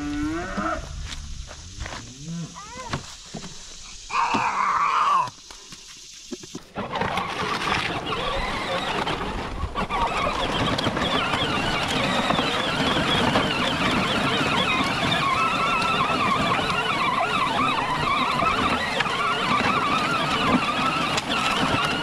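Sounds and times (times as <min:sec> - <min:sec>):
toy electric motors whining: 0:06.4 - 0:22.0.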